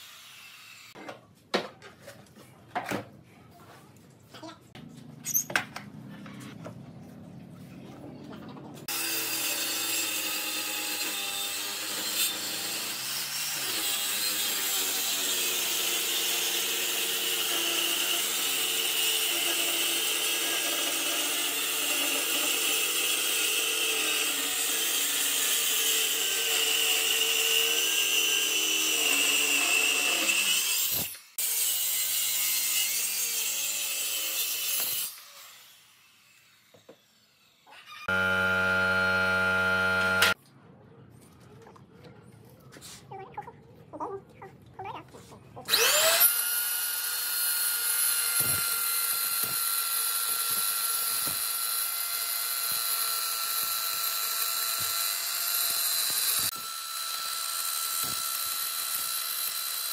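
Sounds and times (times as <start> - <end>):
circular saw cutting wood: 0.0 - 1.0, 8.8 - 40.4, 45.7 - 59.9.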